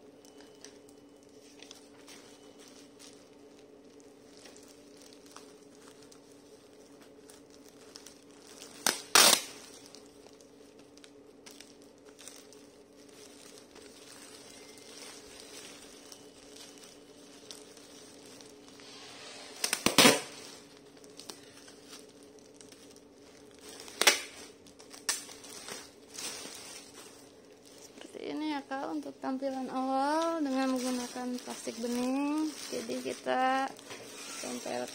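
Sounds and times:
plastic wrapping crinkling: 0.0s - 34.9s
packing tape ripping: 7.1s - 12.6s, 13.3s - 28.1s, 30.0s - 34.9s.

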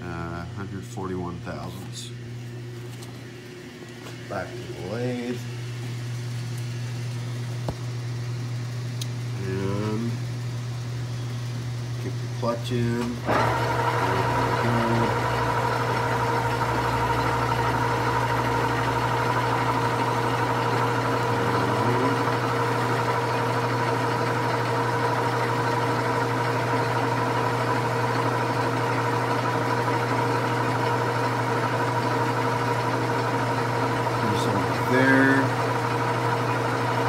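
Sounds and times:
thin steady whine: 0.0s - 28.3s, 34.1s - 37.0s
metal lathe humming: 12.0s - 37.0s.

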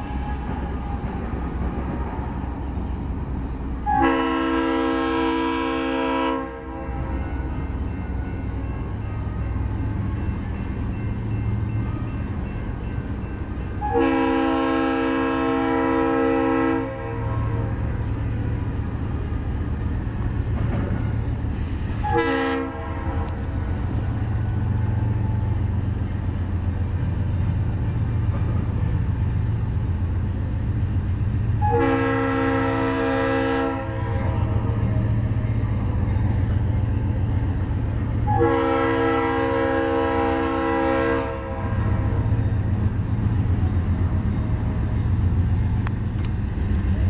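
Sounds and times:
locomotive air horn blasts: 0.0s - 1.5s, 3.8s - 8.4s, 13.8s - 18.0s, 21.9s - 24.0s, 31.6s - 35.2s, 38.2s - 42.4s
diesel engine rumbling: 0.0s - 47.0s.

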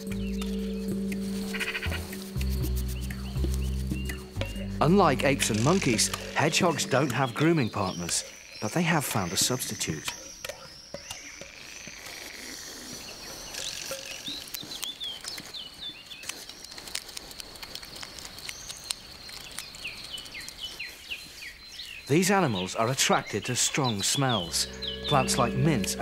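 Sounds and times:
hedgehog snuffling and foraging: 0.0s - 10.2s, 11.8s - 26.0s
birds chirping: 0.0s - 16.9s, 17.9s - 26.0s
high insect-like whine: 1.2s - 3.5s, 4.2s - 14.2s.

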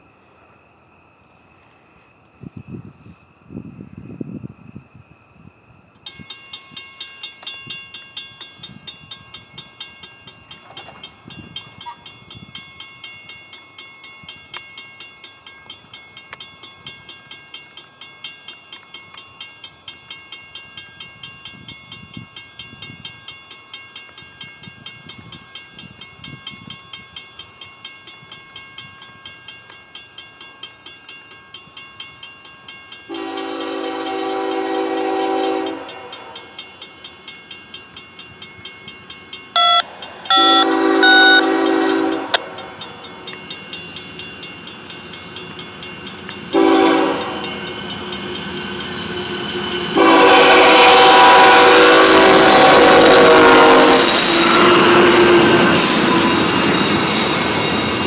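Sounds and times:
crossing warning bell ringing: 6.0s - 58.0s.

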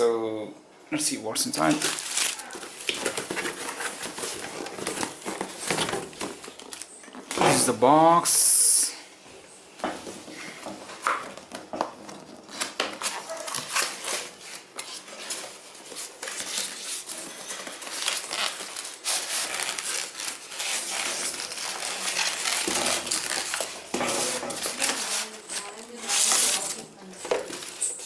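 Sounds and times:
cardboard rustling: 1.5s - 7.7s, 9.9s - 28.0s
foam scraping: 18.5s - 26.9s.

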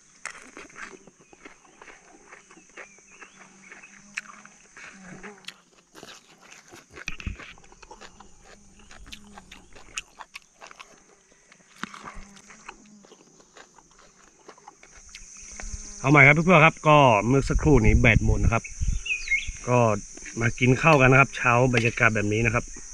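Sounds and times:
high insect drone: 0.0s - 22.9s
animal sounds: 0.7s - 16.7s.

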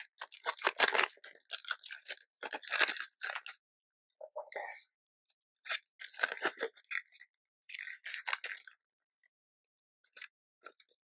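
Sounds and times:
crinkling and rustling materials: 0.0s - 3.6s, 5.6s - 9.3s, 10.0s - 11.0s.

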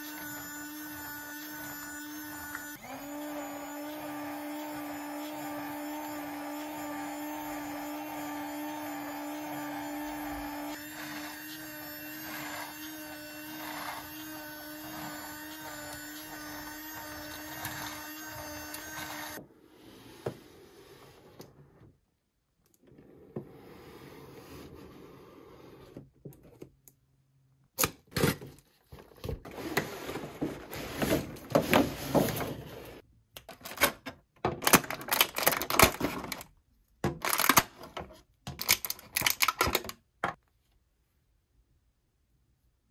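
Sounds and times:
toy electric motor whirring: 0.0s - 19.4s.

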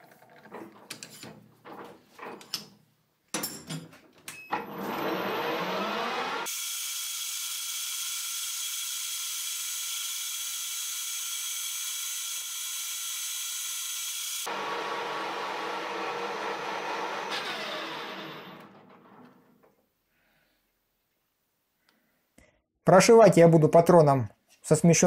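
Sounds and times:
metal lathe whining: 4.6s - 6.5s, 14.4s - 19.2s
lathe spinning down: 4.6s - 6.6s, 14.4s - 19.5s
drill boring into metal: 4.7s - 19.0s.

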